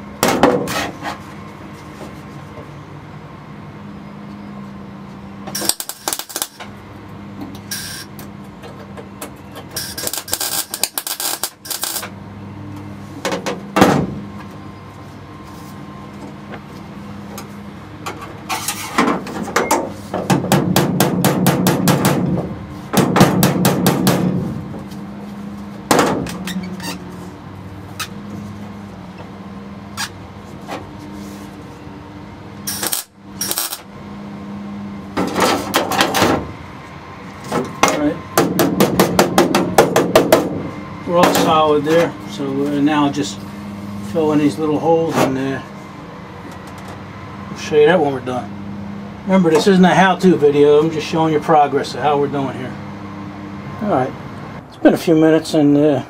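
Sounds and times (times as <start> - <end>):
steady low hum: 0.0 - 56.0
welder crackling bursts: 5.6 - 6.6, 9.8 - 12.1, 32.7 - 33.9
sharp knocks: 19.8 - 24.5, 25.9 - 26.4, 38.4 - 40.7.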